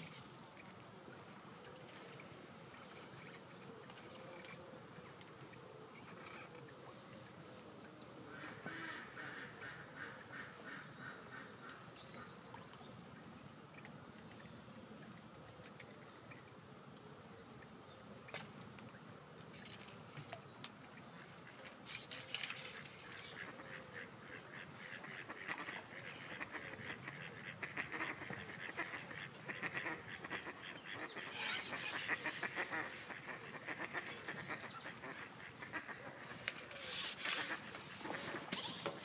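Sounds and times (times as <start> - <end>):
rustling noise: 21.8 - 23.4, 31.2 - 33.2, 36.2 - 39.0
waterfowl chattering calls: 22.6 - 38.9.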